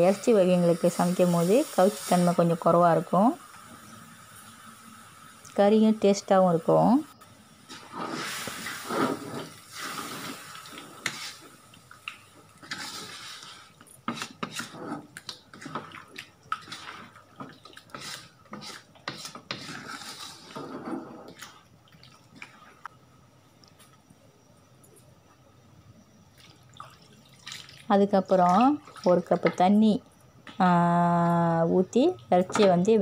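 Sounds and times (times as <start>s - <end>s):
spatula scraping wok: 7.6s - 11.6s, 12.6s - 21.6s
wet sloshing sauce: 26.3s - 29.5s.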